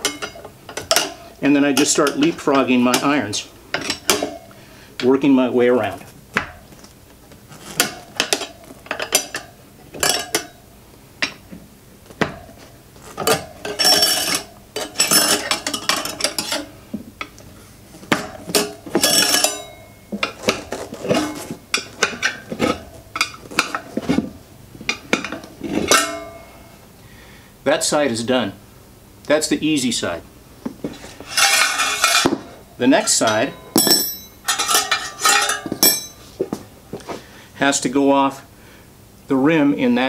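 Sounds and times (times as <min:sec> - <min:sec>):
tire irons clinking on wheel rim: 0:13.2 - 0:16.7, 0:18.2 - 0:23.9, 0:33.0 - 0:36.3.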